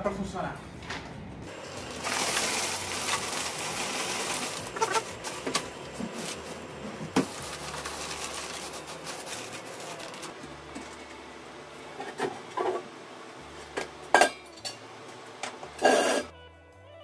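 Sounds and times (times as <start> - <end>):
ice pouring into cooler: 1.5 - 6.6, 7.2 - 10.4
ice chunks clinking and crunching: 1.6 - 5.4, 7.2 - 10.4.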